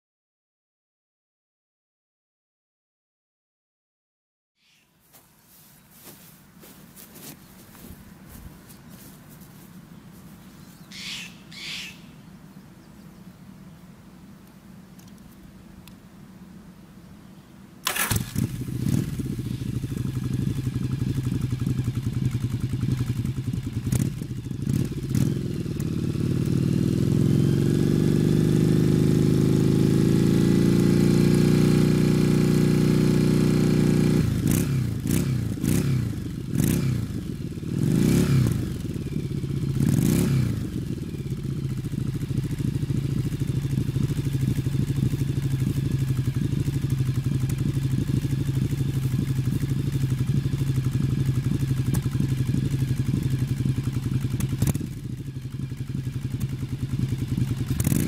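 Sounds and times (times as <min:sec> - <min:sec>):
motorcycle engine revving and idling: 0:17.8 - 0:58.0.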